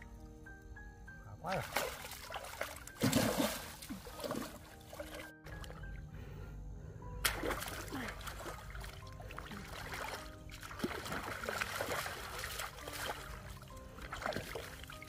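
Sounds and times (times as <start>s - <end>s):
soft background music: 0.0s - 15.0s
hands splashing in muddy water: 1.6s - 5.8s, 7.2s - 15.0s.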